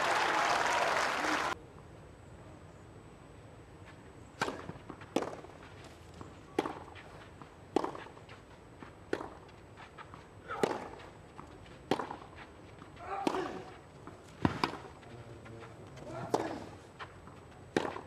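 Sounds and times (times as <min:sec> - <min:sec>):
crowd applause: 0:00.0 - 0:01.6
tennis ball struck by racquets: 0:04.4 - 0:05.6, 0:06.5 - 0:08.2, 0:08.8 - 0:09.5, 0:10.5 - 0:15.0, 0:16.0 - 0:18.0.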